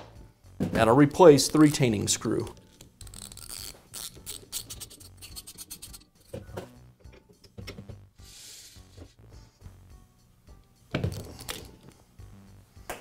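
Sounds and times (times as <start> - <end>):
metal scrape: 3.0 - 6.6.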